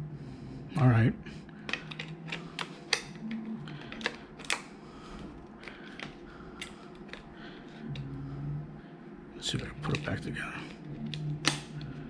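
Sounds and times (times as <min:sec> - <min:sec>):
plastic plug clicking and rattling: 0:01.7 - 0:04.7, 0:11.1 - 0:11.9.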